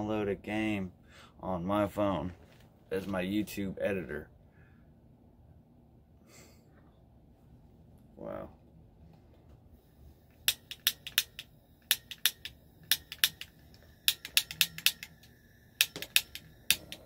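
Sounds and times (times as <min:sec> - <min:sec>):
butane torch igniter clicking: 0:10.3 - 0:17.0.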